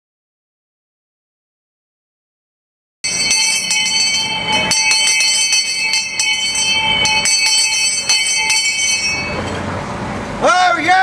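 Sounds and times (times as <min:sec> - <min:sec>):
brass handbell ringing: 0:03.0 - 0:09.7.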